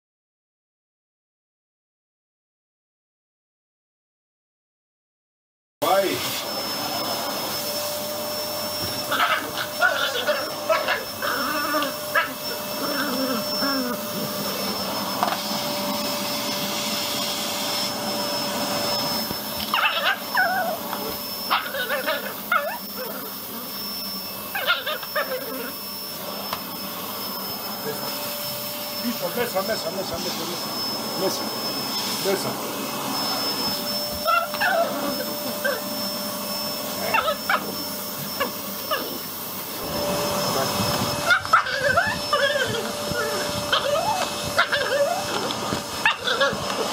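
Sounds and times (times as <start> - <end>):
vacuum cleaner running: 5.8 - 46.9
small dog barking: 9.0 - 14.3, 19.7 - 23.3, 24.5 - 25.8, 34.1 - 35.9, 37.0 - 37.8, 38.4 - 39.2, 41.2 - 46.9.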